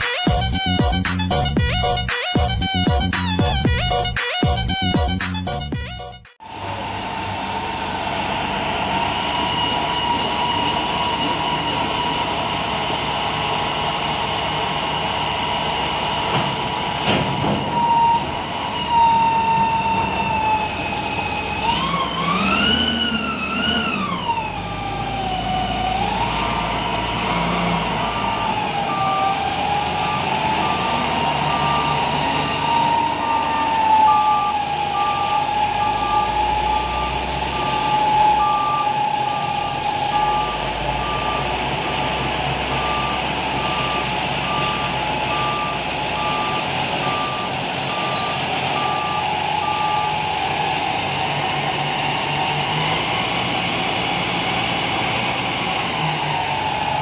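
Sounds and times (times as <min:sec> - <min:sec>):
reach stacker engine whine: 0:00.0 - 0:57.0
repeating warning beep: 0:28.0 - 0:50.4.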